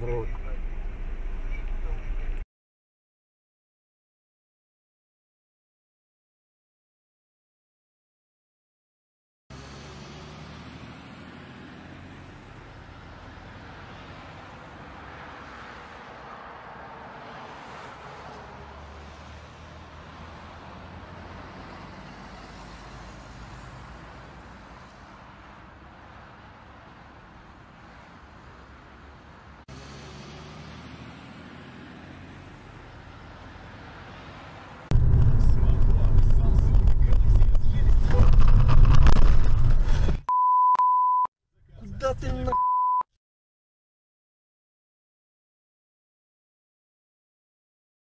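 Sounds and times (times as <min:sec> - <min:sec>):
car engine and road noise: 0:00.0 - 0:02.4, 0:09.5 - 0:43.0
low engine hum: 0:00.0 - 0:02.4, 0:34.9 - 0:40.3.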